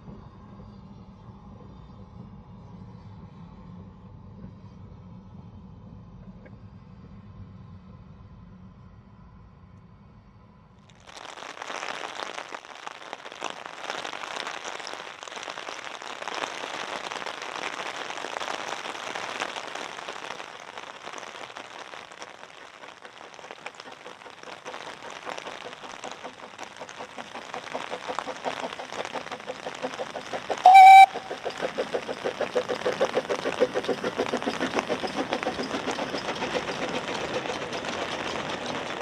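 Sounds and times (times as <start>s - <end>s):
steam locomotive exhaust: 11.2s - 39.0s
short loud whistle tone: 30.6s - 31.4s.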